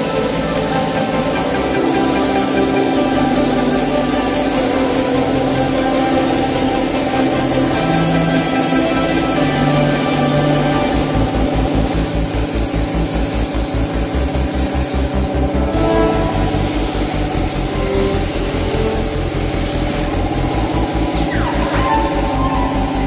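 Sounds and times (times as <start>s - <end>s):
background music with beat: 0.0s - 23.0s
spray gun hissing: 0.0s - 23.0s.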